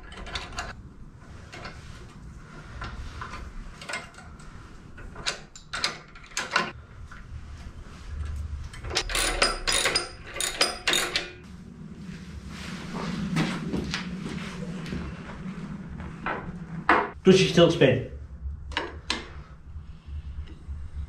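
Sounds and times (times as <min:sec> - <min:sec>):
socket ratchet clicking: 0:09.0 - 0:11.3.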